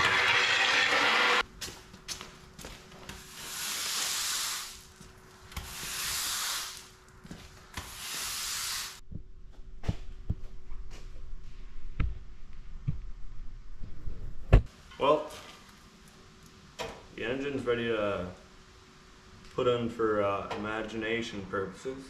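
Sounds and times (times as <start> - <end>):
long scraping strokes: 0.0 - 1.4.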